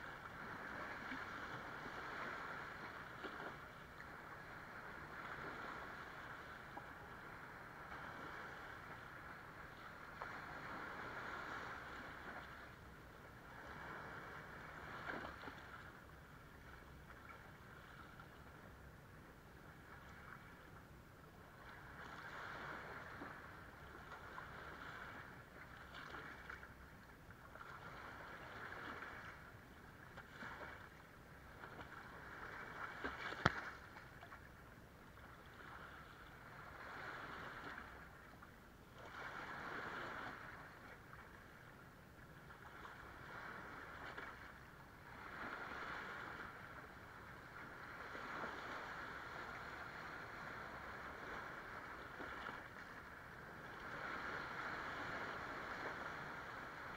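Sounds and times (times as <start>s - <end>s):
small waves washing over sand: 0.0s - 56.9s.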